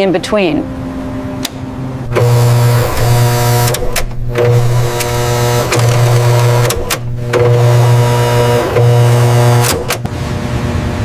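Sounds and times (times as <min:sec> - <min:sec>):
electric motor whirring in pulses: 0:02.0 - 0:10.1.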